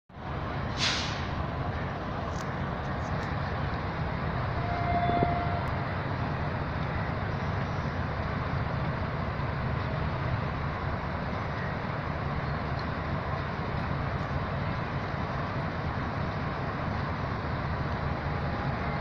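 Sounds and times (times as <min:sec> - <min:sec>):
diesel locomotive engine rumbling: 0:00.1 - 0:19.0
brief steady tone: 0:04.6 - 0:05.7.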